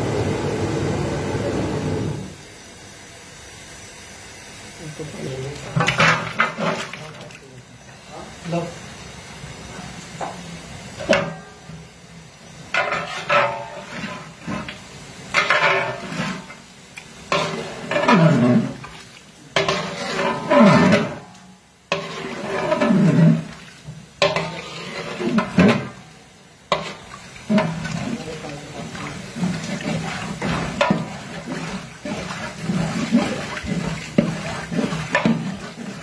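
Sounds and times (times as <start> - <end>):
metal spatula scraping a metal pot: 12.7 - 16.6, 17.3 - 18.9, 19.6 - 21.3, 21.9 - 23.6, 24.2 - 26.0, 26.7 - 36.0.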